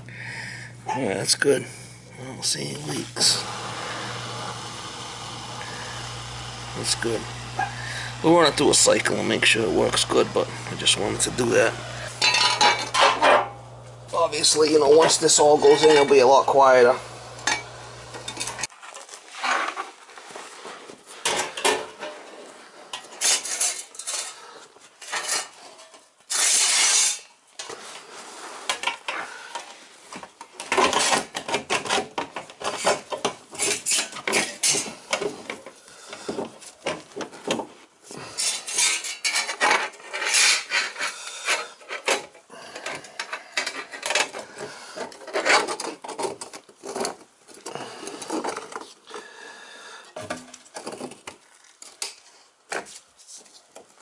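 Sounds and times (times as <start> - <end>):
panels scraping on tile floor: 25.0 - 29.1, 38.2 - 42.3.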